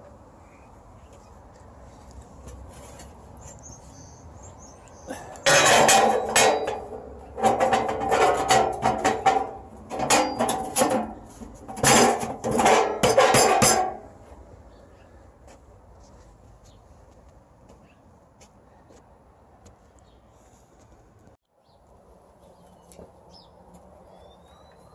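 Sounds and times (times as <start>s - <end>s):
sheet metal parts clattering: 5.4s - 14.2s.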